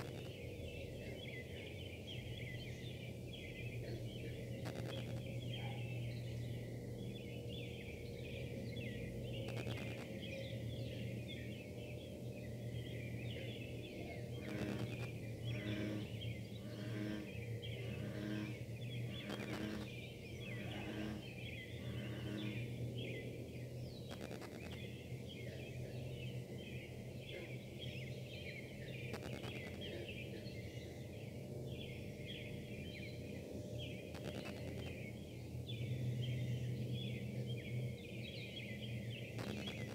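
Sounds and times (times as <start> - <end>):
on-off electronic pulsing: 0.0 - 0.4, 4.6 - 5.3, 9.4 - 10.2, 14.3 - 21.2, 24.1 - 24.8, 29.1 - 29.8, 34.1 - 35.0, 39.3 - 39.9
low buzzing machinery hum: 0.0 - 39.9.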